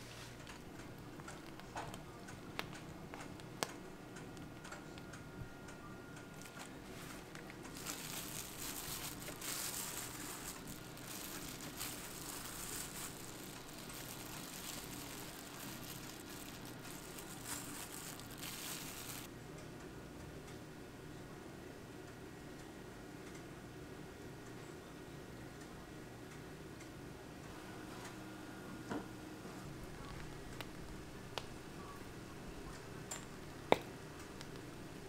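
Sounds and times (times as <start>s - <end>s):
steady low hum: 0.0s - 35.0s
thin plastic crinkling: 6.2s - 19.3s.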